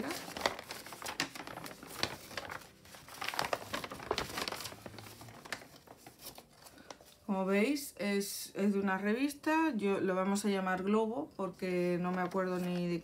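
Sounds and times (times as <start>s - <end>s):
paper crinkling and rustling: 0.0s - 7.3s, 12.0s - 13.0s.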